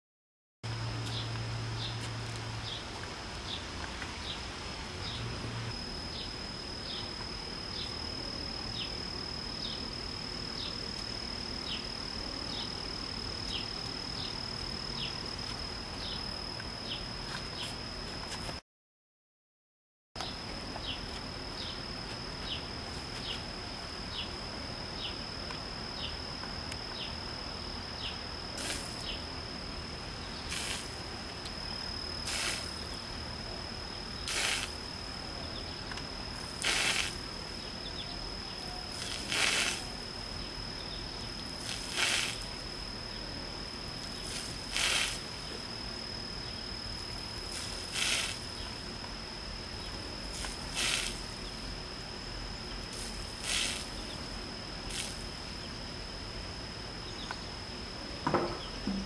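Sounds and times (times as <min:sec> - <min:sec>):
rhinoceros urine squirts hissing: 0:32.3 - 0:32.7, 0:34.3 - 0:34.7, 0:36.6 - 0:37.1, 0:39.0 - 0:39.8, 0:41.6 - 0:42.4, 0:44.3 - 0:45.2, 0:47.6 - 0:48.4, 0:50.4 - 0:51.2, 0:53.0 - 0:53.9.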